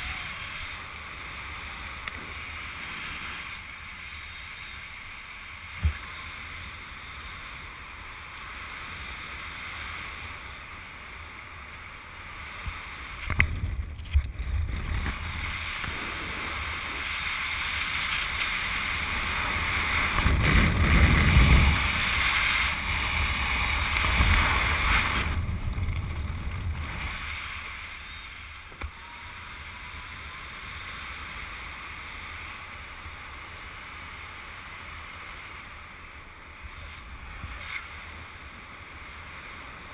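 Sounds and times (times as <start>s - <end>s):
wind buffeting microphone: 13.2s - 28.0s.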